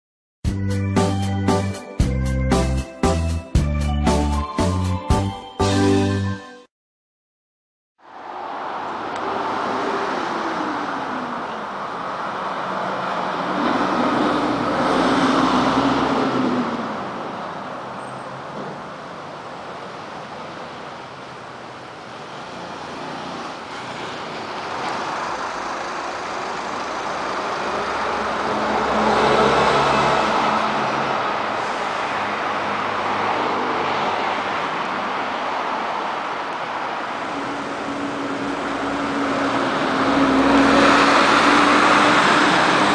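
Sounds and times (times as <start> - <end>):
vehicles passing on street: 8.0 - 42.9.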